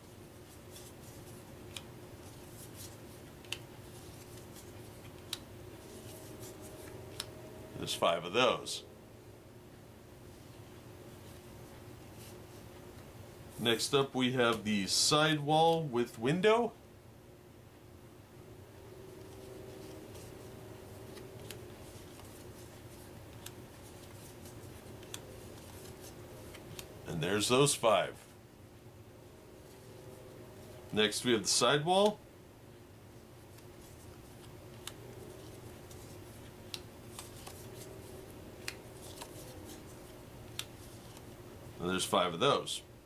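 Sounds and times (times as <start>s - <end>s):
faint steady hum: 0.0s - 43.0s
paper cards rustling: 0.2s - 8.1s, 19.1s - 28.3s, 33.4s - 41.4s.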